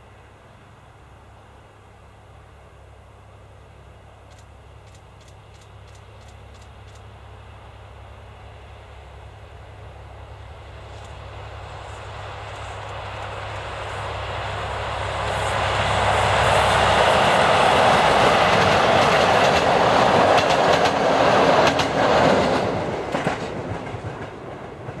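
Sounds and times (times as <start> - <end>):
diesel locomotive engine drone: 0.0 - 25.0
train wheels clicking over rail joints: 4.3 - 7.1, 18.2 - 25.0.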